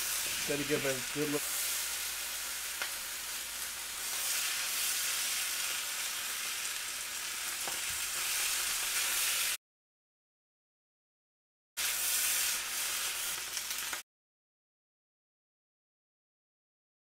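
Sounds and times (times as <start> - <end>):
rice sizzling in a hot pan: 0.0 - 9.6, 11.8 - 14.0.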